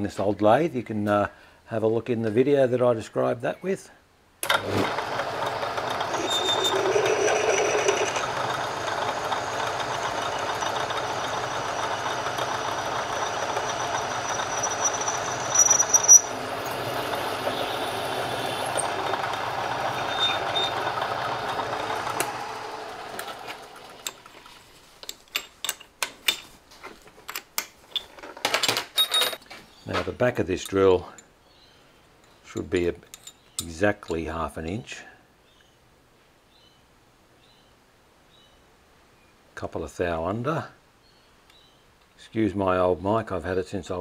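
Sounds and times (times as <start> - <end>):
metal lathe running: 4.4 - 24.2
drill cutting squeal: 5.9 - 22.1
clicks and rattles: 23.2 - 30.1.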